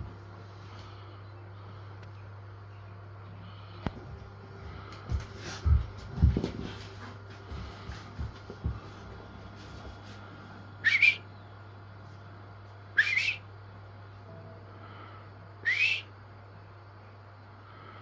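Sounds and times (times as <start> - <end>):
short rising whistles: 10.8 - 11.4, 13.0 - 13.5, 15.6 - 16.1.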